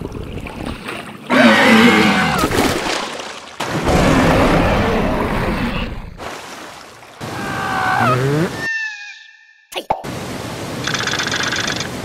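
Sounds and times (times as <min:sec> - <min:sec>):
rush of churning water: 0:00.0 - 0:08.6.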